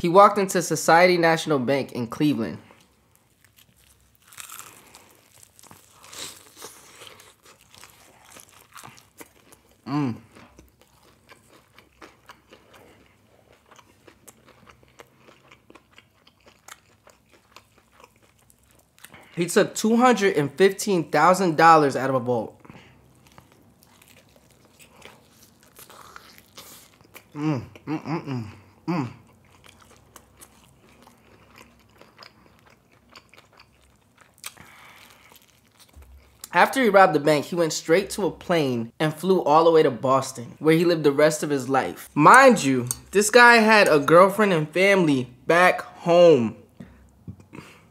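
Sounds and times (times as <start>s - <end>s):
chewing crispy fried chicken: 2.8s - 19.5s, 22.6s - 36.7s
crunching bite: 3.4s - 12.7s.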